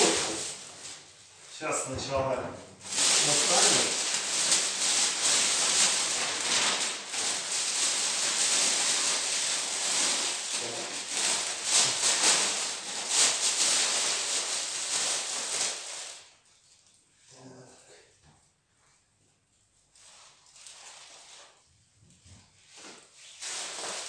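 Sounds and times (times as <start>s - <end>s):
plastic packaging rustling: 0.0s - 1.2s, 2.8s - 16.4s, 22.6s - 24.0s.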